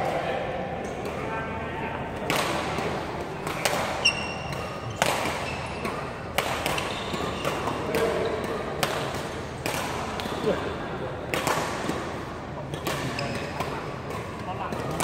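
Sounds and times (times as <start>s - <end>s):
rackets hitting shuttlecock: 2.0s - 15.0s
shoe squeak: 4.0s - 5.8s, 6.7s - 8.4s.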